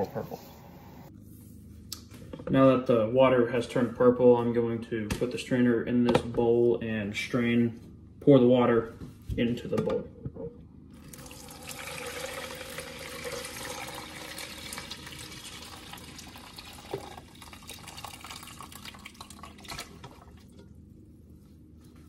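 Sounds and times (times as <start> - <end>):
water pouring and dripping: 11.1 - 20.6.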